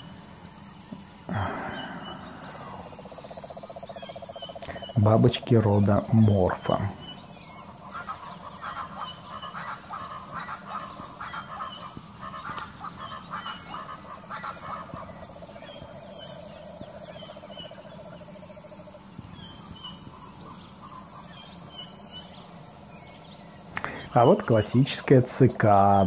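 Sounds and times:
low background hum: 0.0 - 26.0
faint high chirps: 0.9 - 5.0
short repeated animal calls: 1.3 - 5.0.

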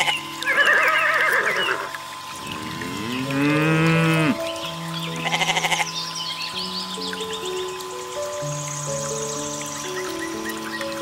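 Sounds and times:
background music: 0.0 - 11.0
cow mooing: 2.4 - 4.5, 5.2 - 5.9
goat bleating: 5.2 - 5.8.

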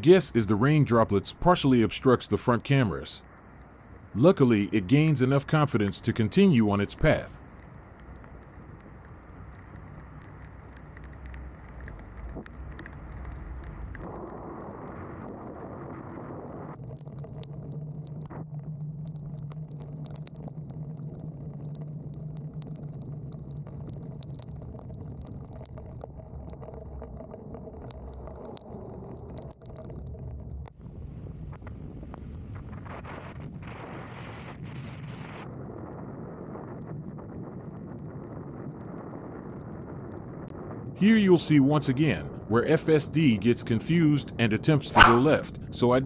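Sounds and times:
raindrops ticking: 0.0 - 14.0, 16.8 - 30.8
low steady hum: 0.0 - 27.2.

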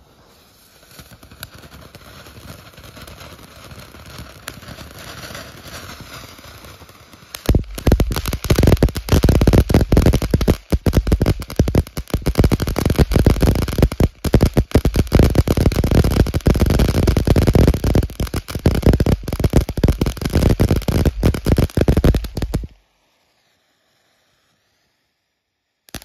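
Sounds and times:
firework hissing and crackling: 0.0 - 26.0.

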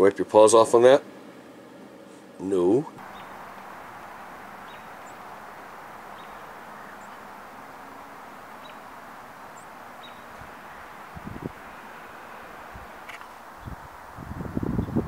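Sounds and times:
steady rushing hiss: 0.0 - 15.0
high bird chirps: 3.0 - 14.0.

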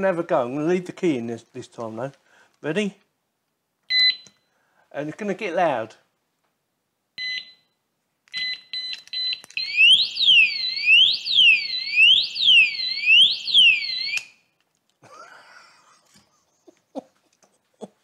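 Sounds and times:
alarm beeps: 3.9 - 4.3, 7.2 - 7.8, 8.4 - 14.3
alarm siren sweeping in pitch: 9.6 - 14.3.

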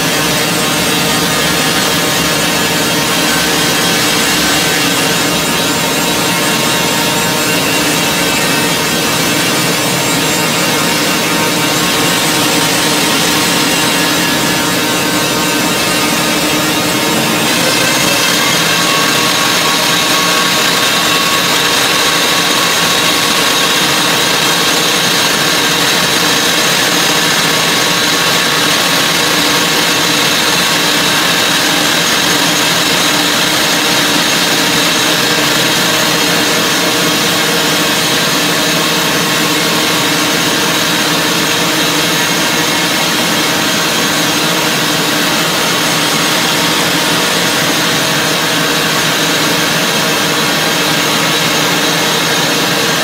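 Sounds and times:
drill boring into rock: 0.0 - 53.0.

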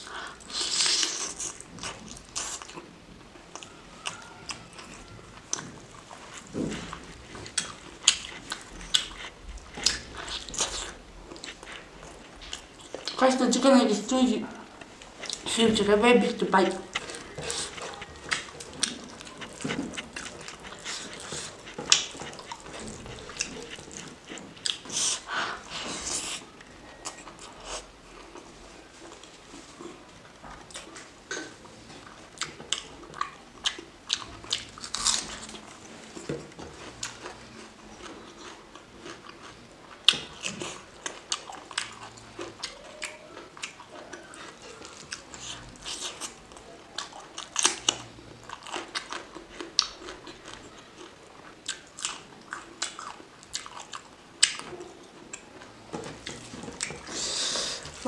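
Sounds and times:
person chewing food: 0.0 - 13.2, 14.5 - 15.6, 16.6 - 58.0
crunch of biting: 34.1 - 35.6.

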